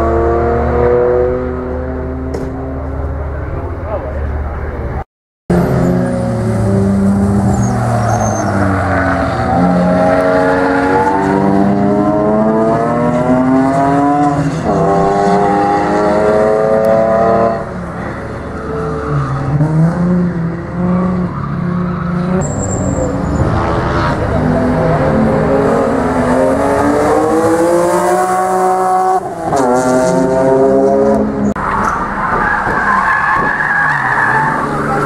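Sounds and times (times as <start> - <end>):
racing car engines revving: 0.0 - 35.0
tyre squeal: 7.4 - 11.2, 21.3 - 23.5.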